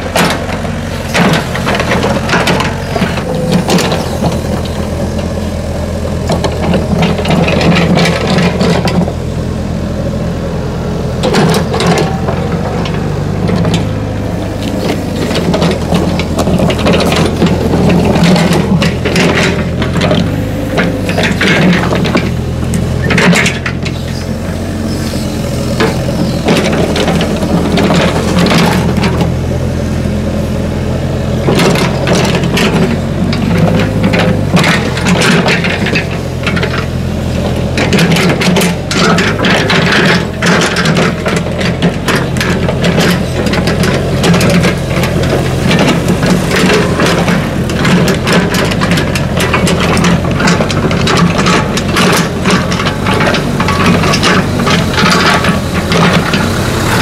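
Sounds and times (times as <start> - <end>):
excavator diesel engine running: 0.0 - 57.0
metal clanks and scrapes: 14.6 - 29.3, 31.5 - 57.0.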